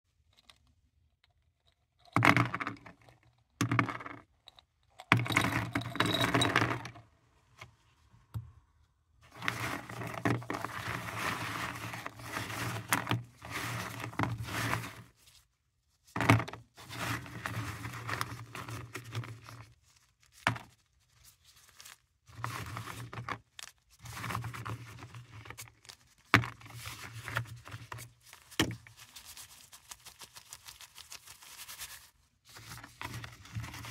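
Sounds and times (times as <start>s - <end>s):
hard tablets clattering and scraping: 2.0s - 7.0s, 9.3s - 15.2s, 16.2s - 19.7s, 21.8s - 33.9s
rustling: 9.3s - 15.4s, 16.8s - 33.9s.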